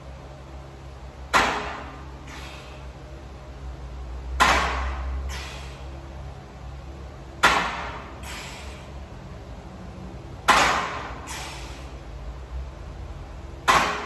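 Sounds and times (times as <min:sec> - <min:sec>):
forceful hissing breaths: 0:02.1 - 0:03.1, 0:05.2 - 0:06.1, 0:08.0 - 0:09.2, 0:11.0 - 0:12.2.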